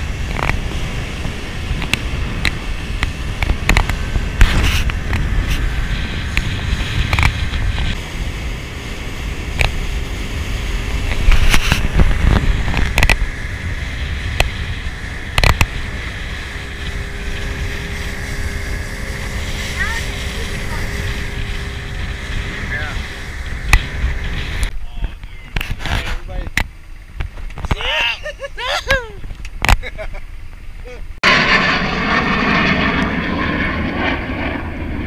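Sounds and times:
motorboat engine rumble: 0:00.0 - 0:35.0
hull knocking on waves: 0:09.2 - 0:25.8.

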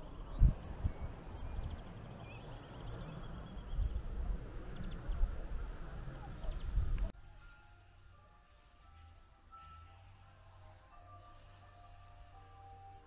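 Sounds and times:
faint bird chirps: 0:00.0 - 0:04.0
wind rumbling on microphone: 0:00.0 - 0:07.1.

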